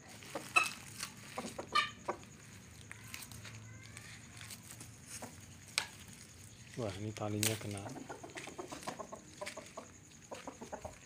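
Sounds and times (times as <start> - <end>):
rooster clucking: 0.0 - 2.9, 7.7 - 11.0.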